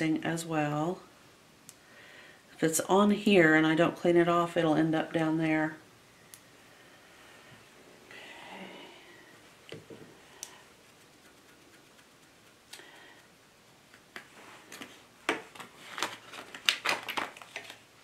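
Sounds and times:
brush bristles scratching: 0:10.7 - 0:12.8.

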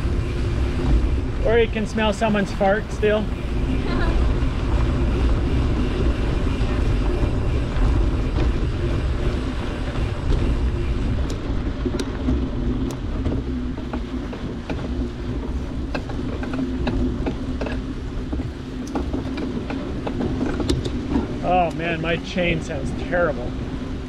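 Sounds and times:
wind and tyres rumbling: 0:00.0 - 0:24.0.

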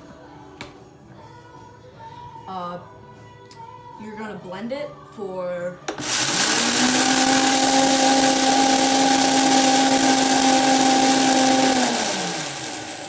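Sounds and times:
blender motor whine: 0:06.0 - 0:13.0
rice churning in blender: 0:06.0 - 0:13.0.

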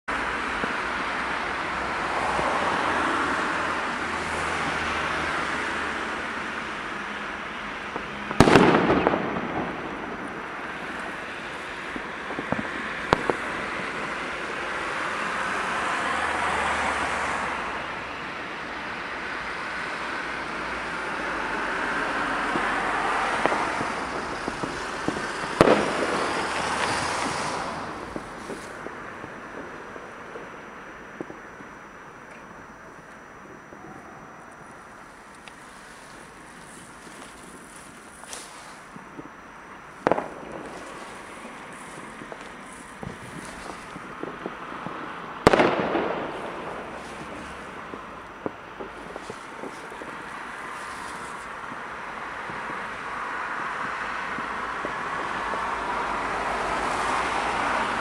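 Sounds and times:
rockets and firecrackers: 0:00.1 - 0:58.0
sharp cracks: 0:07.9 - 0:15.7, 0:22.5 - 0:30.6, 0:40.0 - 0:51.8.

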